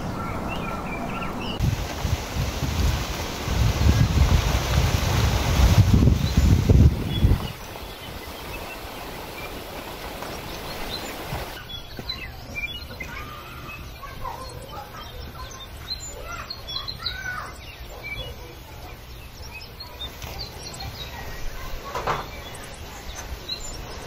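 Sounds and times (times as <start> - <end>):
birds chirping: 0.0 - 24.0
steady hiss: 1.6 - 11.6.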